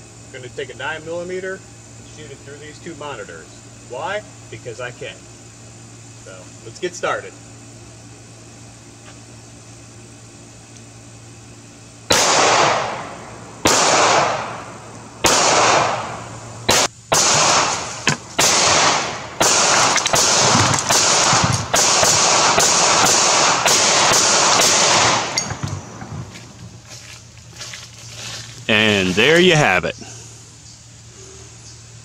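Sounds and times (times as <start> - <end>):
pistol shots with echo: 12.1 - 25.8.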